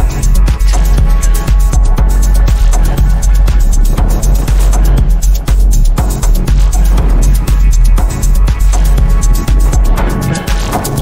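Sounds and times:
music with heavy bass and beat: 0.0s - 11.0s.

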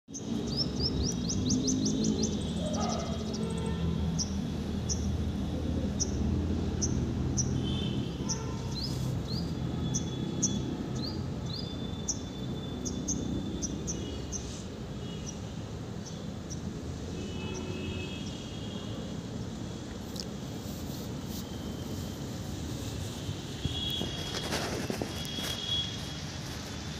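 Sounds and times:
small birds chirping: 0.1s - 16.7s.

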